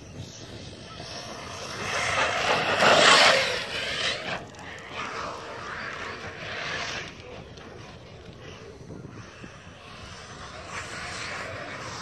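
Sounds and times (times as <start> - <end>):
rc truck motor whine: 0.0 - 7.2.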